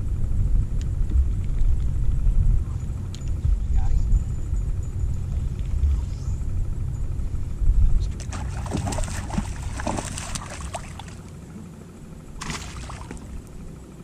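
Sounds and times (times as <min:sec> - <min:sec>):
wind rumble on microphone: 0:00.0 - 0:14.0
water splashing and trickling: 0:08.2 - 0:11.4, 0:12.4 - 0:13.6.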